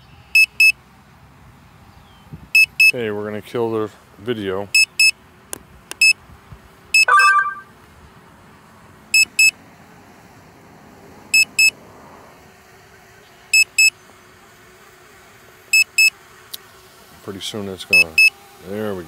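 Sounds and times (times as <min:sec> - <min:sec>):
drone controller double beeps: 0:07.0 - 0:07.7
lower two-note tone: 0:07.1 - 0:07.7.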